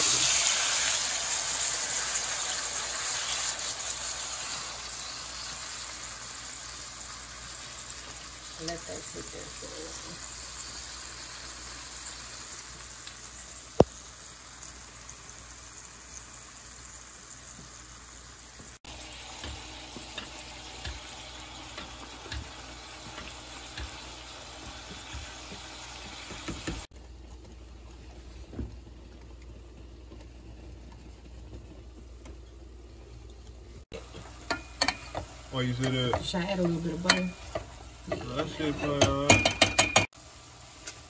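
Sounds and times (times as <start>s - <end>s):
meat sizzling in a frying pan: 0.0s - 26.9s, 33.8s - 41.0s
rice boiling in a pot: 0.0s - 41.0s
spoon knocking against a pot: 34.1s - 40.1s.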